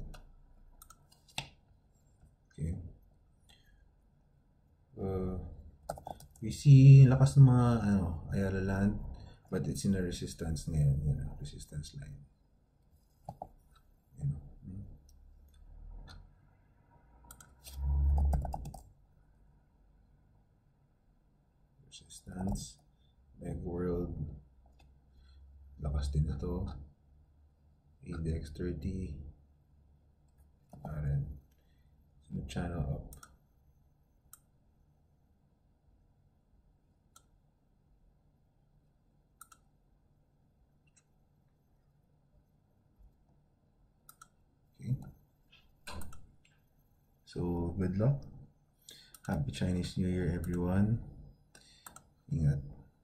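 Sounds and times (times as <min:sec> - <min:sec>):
computer mouse clicks: 0:00.8 - 0:01.6, 0:05.9 - 0:06.4, 0:13.2 - 0:13.9, 0:17.3 - 0:18.9, 0:39.4 - 0:39.7, 0:44.1 - 0:45.1, 0:45.9 - 0:46.5, 0:48.9 - 0:49.4, 0:50.4 - 0:50.6, 0:51.5 - 0:52.1
computer keyboard typing: 0:05.9 - 0:06.4, 0:18.1 - 0:18.9.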